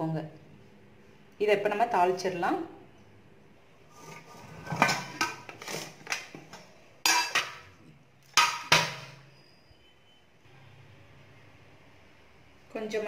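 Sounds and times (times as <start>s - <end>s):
steel lid clattering: 4.2s - 6.2s, 7.0s - 7.7s, 8.4s - 9.2s
spoon clinking against metal cups: 7.0s - 9.2s.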